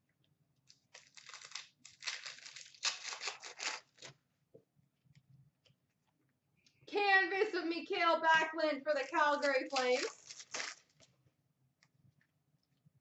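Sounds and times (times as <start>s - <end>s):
card pack wrapper tearing: 0.7s - 4.1s, 9.4s - 11.0s.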